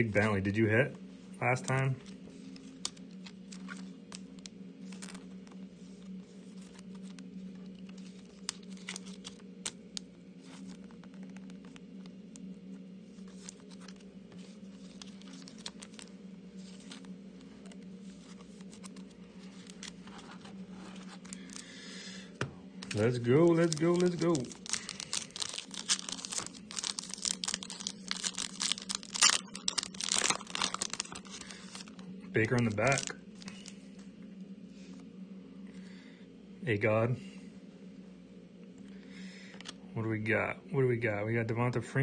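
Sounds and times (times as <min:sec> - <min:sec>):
steady low hum: 0:00.0 - 0:42.0
plastic card sleeves crinkling: 0:01.4 - 0:34.1.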